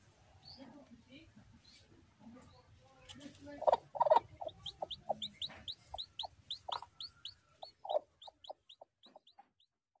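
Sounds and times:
chicks peeping: 2.5 - 9.8
hen clucking: 3.2 - 9.8.

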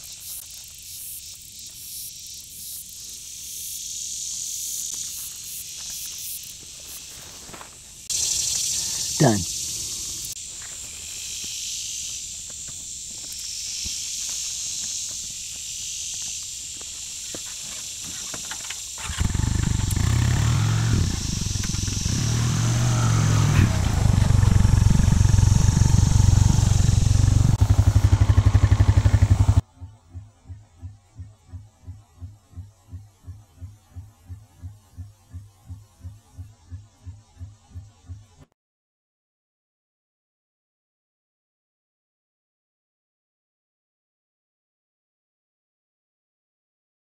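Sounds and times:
insects humming: 0.0 - 38.5
atv engine running: 19.0 - 29.6
faint soft pulsing beat: 29.7 - 38.5.

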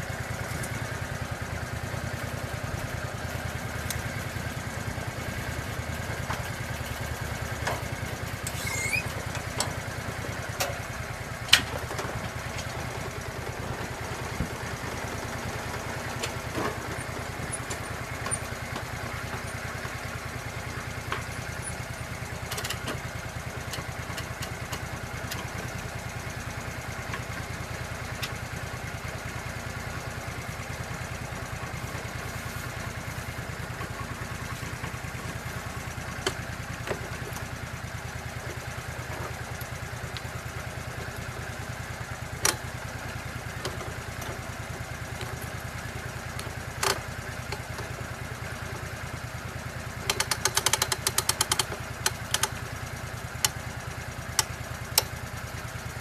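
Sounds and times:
sawmill engine running: 0.0 - 56.0
rattling clicks: 50.1 - 52.6.

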